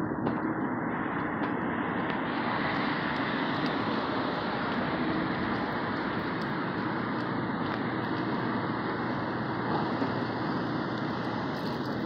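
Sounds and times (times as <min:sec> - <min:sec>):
cars driving through intersection: 0:00.0 - 0:12.0.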